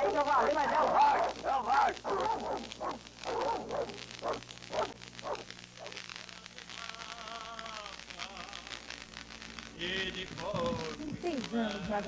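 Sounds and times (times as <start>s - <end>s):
dog barking: 0.0s - 6.0s
film soundtrack hiss: 0.0s - 12.0s.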